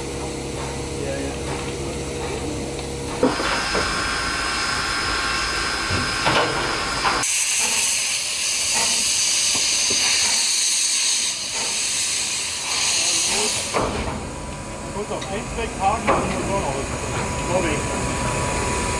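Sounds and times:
steam blowing from drain cocks: 3.2 - 14.1
steam locomotive hissing steam: 3.2 - 18.9.

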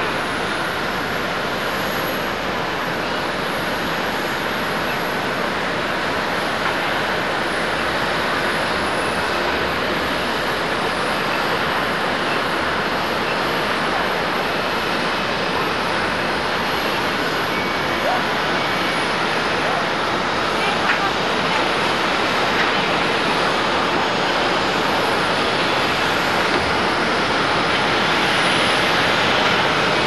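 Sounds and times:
jet engine rushing: 0.0 - 30.0.

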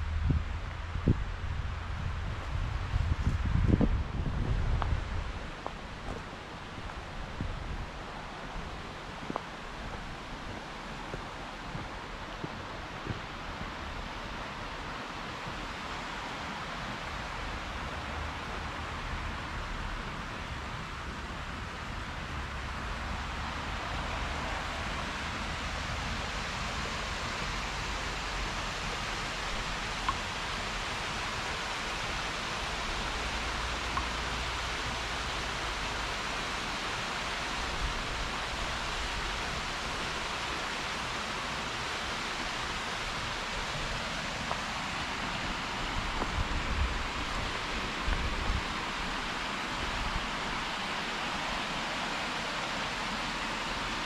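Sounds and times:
low rumble: 0.0 - 5.2
water rushing over rocks: 5.0 - 54.0.

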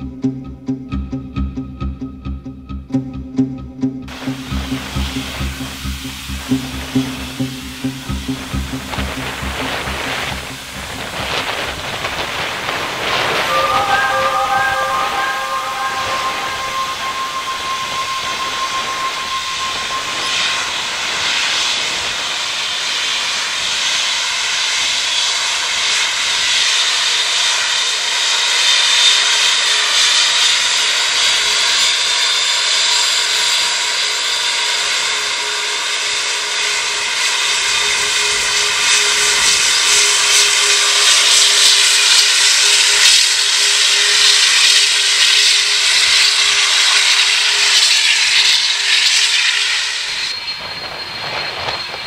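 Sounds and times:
jet engines whining: 4.1 - 28.6, 34.4 - 52.0.

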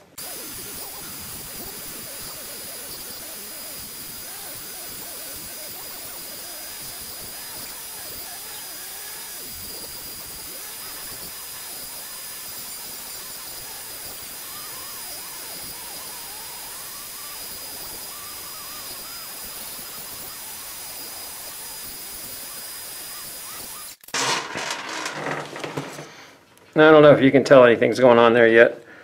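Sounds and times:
rotary tool whining: 0.0 - 26.4
burr grinding into wood: 24.0 - 26.6.

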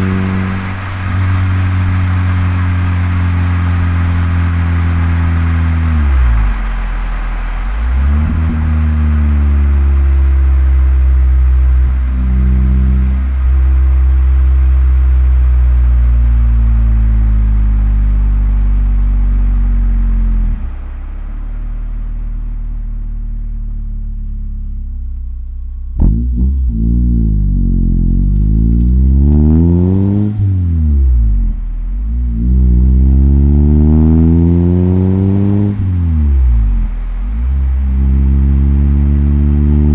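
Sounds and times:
car engine accelerating: 0.0 - 39.9.

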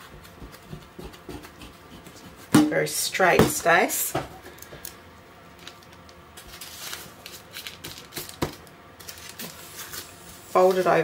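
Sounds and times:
dough rustling on baking paper: 5.5 - 11.0.

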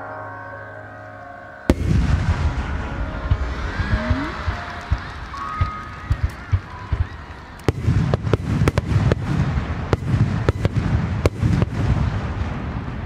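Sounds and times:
low rumble of booms: 1.7 - 5.1.

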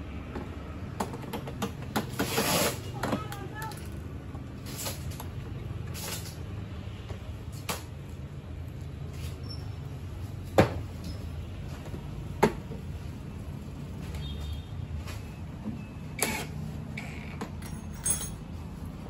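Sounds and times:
plastic parts knocking and clicking: 0.3 - 2.3.

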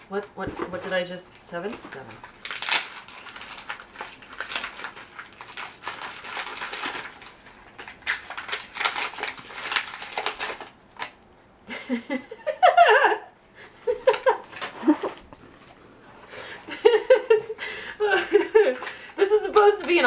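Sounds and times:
wrapping paper tearing and crinkling: 0.0 - 11.2, 18.6 - 20.0.

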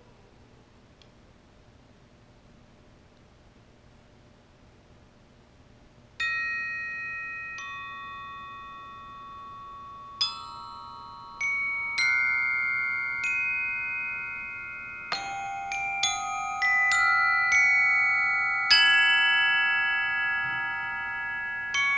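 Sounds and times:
glockenspiel notes: 6.2 - 21.9.

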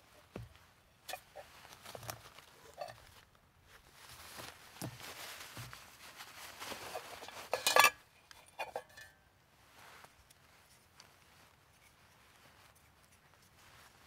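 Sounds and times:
soft rustling: 0.0 - 14.0
metallic clatter: 7.0 - 9.1.

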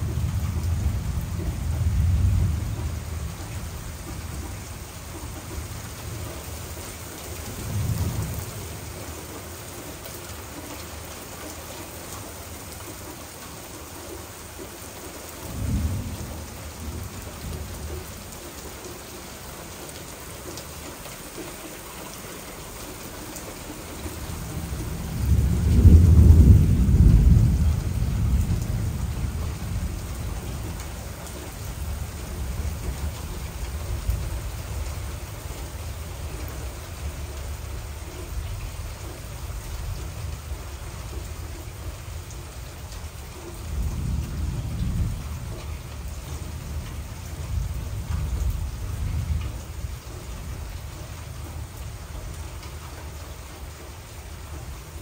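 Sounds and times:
thunder rumbling: 0.0 - 6.8, 15.4 - 18.4, 24.0 - 35.1, 43.6 - 51.7
heavy rain: 0.0 - 55.0.

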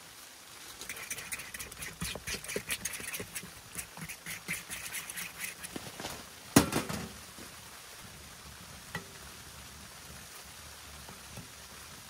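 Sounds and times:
faint steady hiss: 0.0 - 12.0
utensil knocking mixing bowl: 0.9 - 5.7.

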